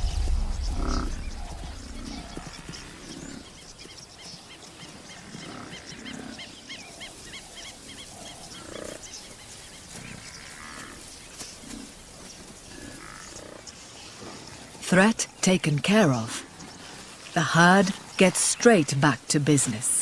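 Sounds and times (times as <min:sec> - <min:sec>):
lion growling: 0:00.0 - 0:03.6.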